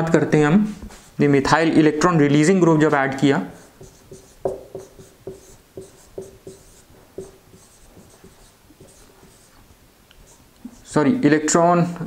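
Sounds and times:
marker squeaking on whiteboard: 3.5s - 11.0s.

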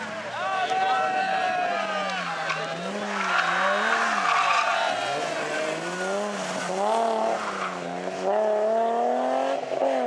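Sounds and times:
car engine revving: 2.0s - 10.0s.

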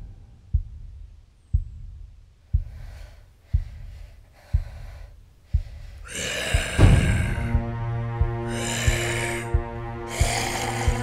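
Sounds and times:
deep heartbeat-like thump: 0.0s - 11.0s
woman gasping breaths: 2.6s - 7.6s.

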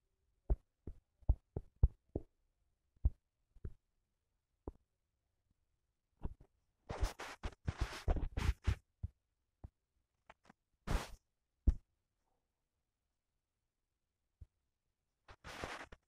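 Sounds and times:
scratchy handling noise: 6.2s - 9.0s, 15.3s - 16.0s.

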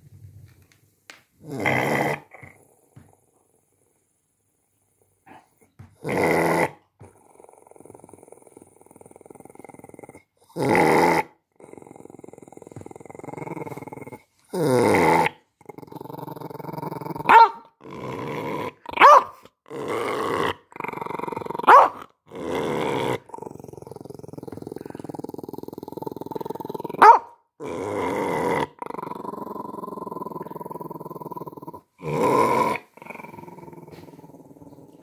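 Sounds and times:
dog snarling: 1.4s - 3.1s, 5.3s - 35.0s
dog growling: 1.4s - 3.8s, 5.2s - 35.0s
dog barking: 17.3s - 17.7s, 19.0s - 19.4s, 21.7s - 22.0s, 27.0s - 27.4s.

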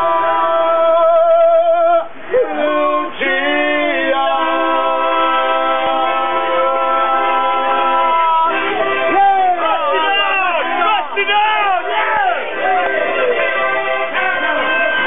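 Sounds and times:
person singing with vibrato: 0.0s - 9.2s
accordion chords: 2.5s - 15.0s.

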